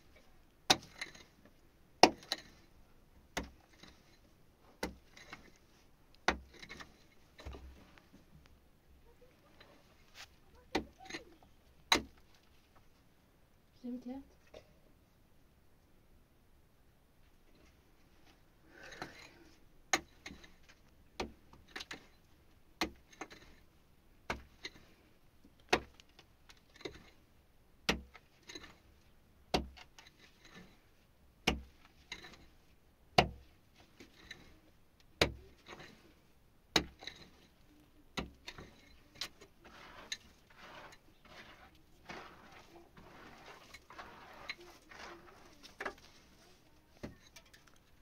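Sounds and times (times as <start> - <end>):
hand tool striking hard material: 2.0 - 2.5, 31.4 - 32.4, 38.2 - 46.4
scraping: 3.4 - 8.5, 35.4 - 36.2, 36.8 - 48.0.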